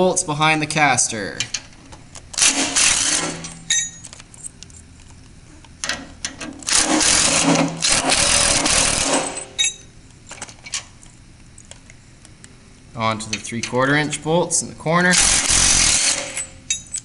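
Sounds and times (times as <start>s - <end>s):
power driver spinning bolts: 1.4s - 4.5s, 5.8s - 10.6s, 15.1s - 17.0s.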